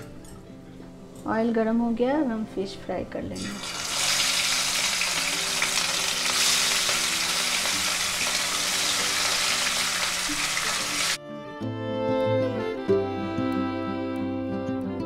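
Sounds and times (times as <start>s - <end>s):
fish sizzling in hot oil: 3.4s - 11.2s.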